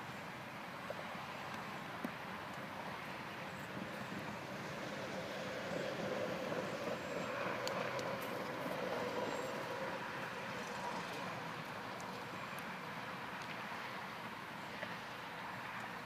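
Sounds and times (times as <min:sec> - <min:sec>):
light ticks: 0:07.6 - 0:08.6.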